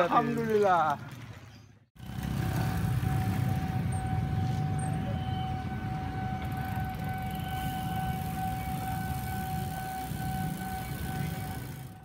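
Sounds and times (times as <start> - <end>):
steady high tone: 3.0 - 12.0.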